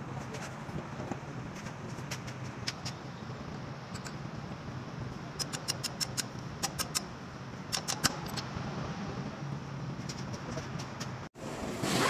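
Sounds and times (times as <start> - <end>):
pick tool clicking on metal: 7.7 - 8.4.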